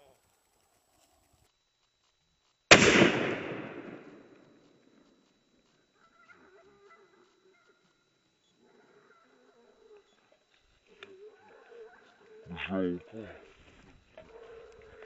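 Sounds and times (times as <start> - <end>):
shotgun shot with echo: 2.7 - 4.6.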